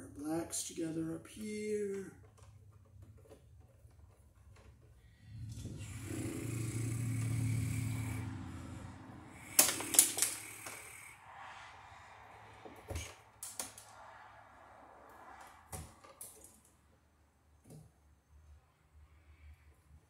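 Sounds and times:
low steady hum: 2.0 - 15.7
wire strippers snapping and clicking: 9.5 - 11.0, 12.9 - 13.9.

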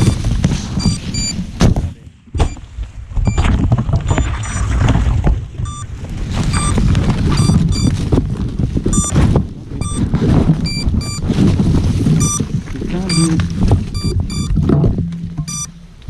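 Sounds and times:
rumbling handling noise and knocks: 0.0 - 16.0
short high beeps: 0.8 - 1.4, 5.7 - 5.9, 6.5 - 6.8, 7.4 - 7.9, 9.8 - 10.0, 10.6 - 11.2, 12.2 - 12.4, 13.0 - 14.6, 15.4 - 15.8.

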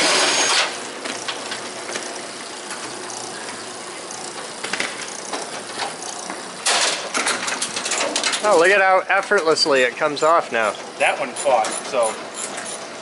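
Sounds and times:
ratchet wrench clicking: 1.2 - 3.4, 4.0 - 6.4.

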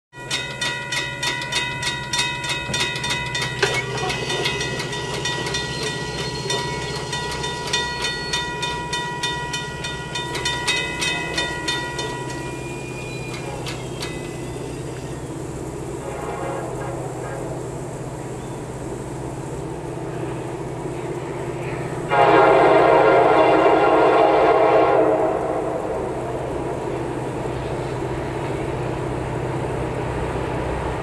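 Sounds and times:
train rumbling: 0.1 - 31.0
metallic bell ringing: 0.2 - 14.7.

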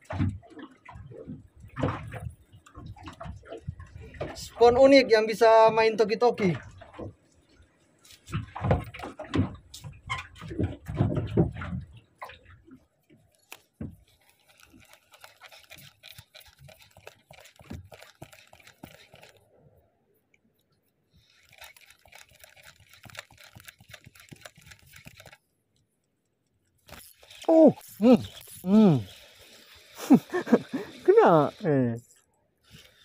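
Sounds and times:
spinning reel ticking: 14.2 - 19.4, 21.2 - 25.4, 26.8 - 33.0.

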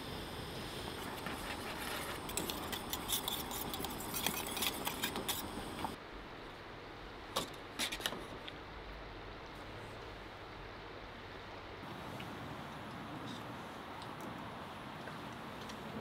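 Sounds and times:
steady hiss: 0.0 - 7.8.

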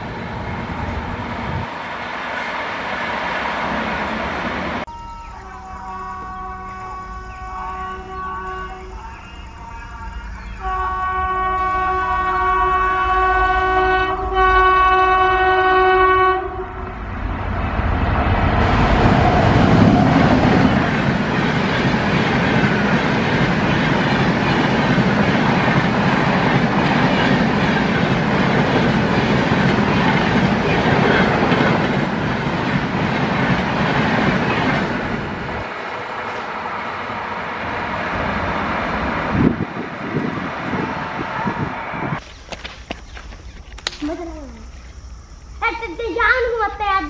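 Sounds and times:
passenger train passing: 0.0 - 42.2
locomotive horn: 4.8 - 17.0.

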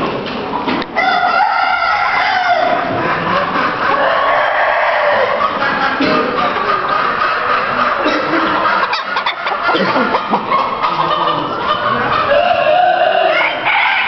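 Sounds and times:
chickens clucking: 0.0 - 14.0.

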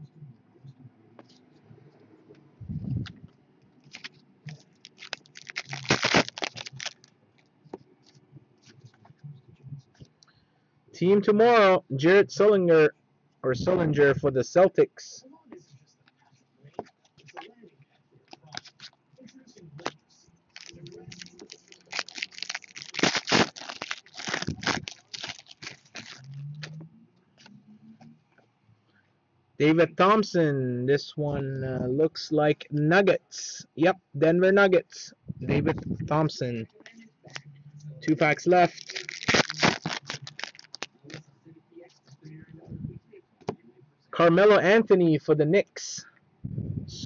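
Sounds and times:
foil wrapper crinkling: 3.9 - 7.1, 20.5 - 26.4, 38.2 - 41.2.

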